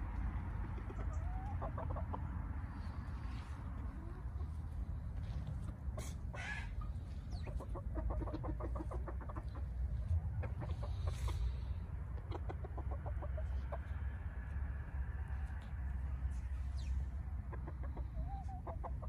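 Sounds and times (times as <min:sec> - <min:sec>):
steady low rumble: 0:00.0 - 0:19.0
hen clucking: 0:00.5 - 0:04.8, 0:05.9 - 0:14.0, 0:16.8 - 0:19.0.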